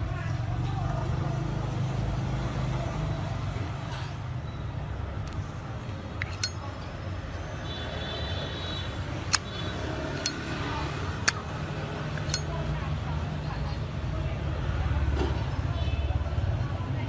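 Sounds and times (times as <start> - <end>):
metallic lighter clicks: 6.2 - 6.6, 9.3 - 9.6, 12.2 - 12.5.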